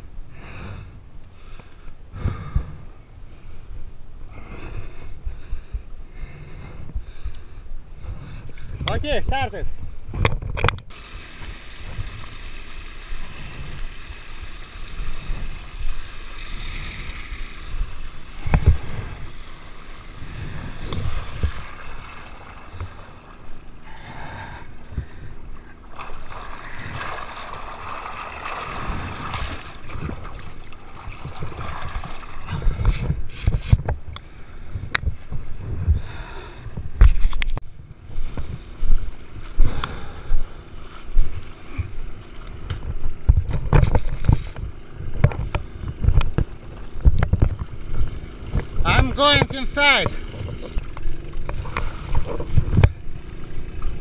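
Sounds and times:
water gushing and splashing: 10.9 - 23.8, 25.8 - 33.0
pump engine running: 10.9 - 33.7, 38.6 - 54.0.

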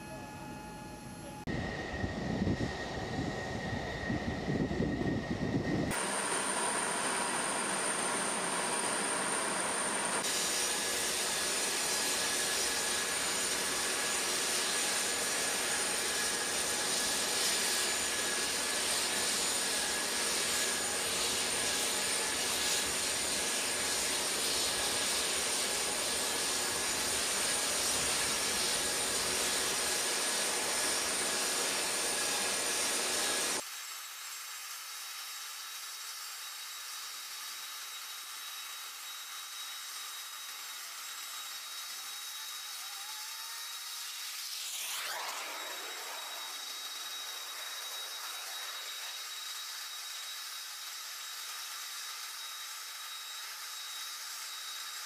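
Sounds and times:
jet turbine whine: 0.0 - 33.6, 37.9 - 55.0
thin hiss with high tone: 42.8 - 50.5.

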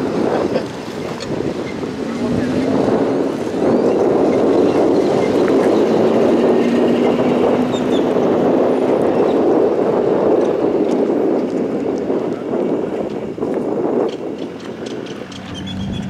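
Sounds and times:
vehicle road and wind rumble: 0.0 - 16.0
faint engine drone: 15.2 - 16.0.

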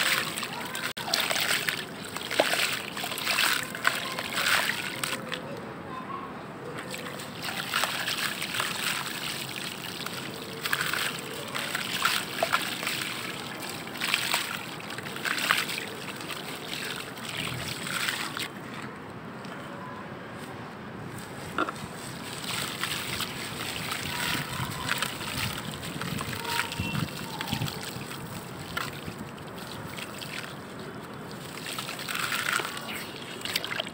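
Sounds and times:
soil splashing into water: 0.0 - 5.3, 6.9 - 18.5, 22.3 - 33.9
hands sloshing mud: 0.0 - 5.4, 6.9 - 18.9, 21.6 - 33.9.

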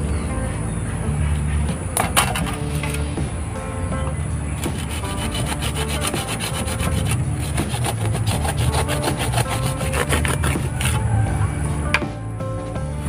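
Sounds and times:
hand saw cutting roots: 4.6 - 11.1.

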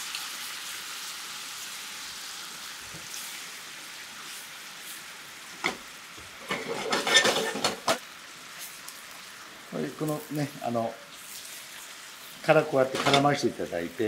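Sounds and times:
sauce bubbling and sizzling: 0.0 - 14.0
spatula scraping and knocking in pan: 5.6 - 8.0.

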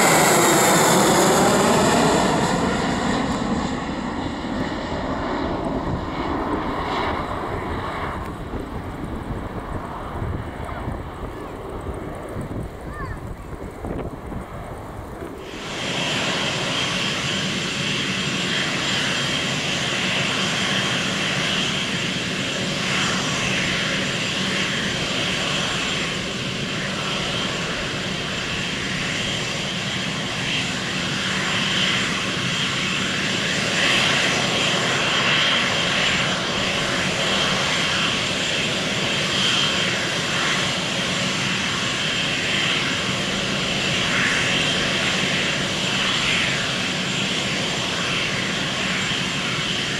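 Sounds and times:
jet engines roaring: 0.0 - 49.9.

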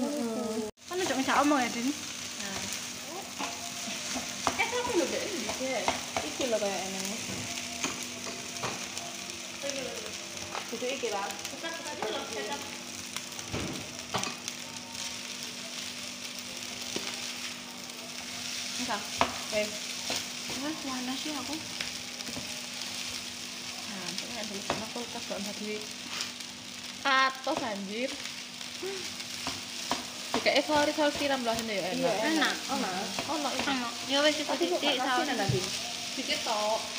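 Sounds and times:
rice sizzling in frying pan: 0.0 - 36.9
spatula scraping and tapping pan: 3.4 - 8.9, 29.4 - 31.6.

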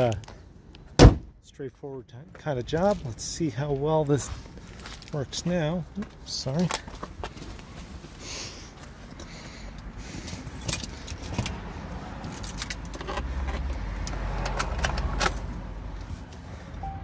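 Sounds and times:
low vehicle rumble: 6.9 - 17.0
car keys jangling: 10.3 - 11.5, 12.2 - 13.2.

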